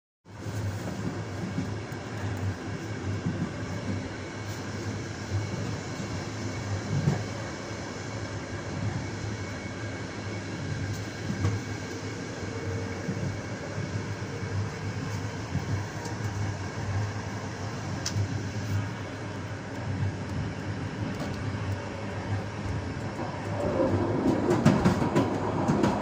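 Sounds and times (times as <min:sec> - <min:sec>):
train wheels running on rails: 0:00.3 - 0:26.0
train knocks: 0:23.9 - 0:26.0.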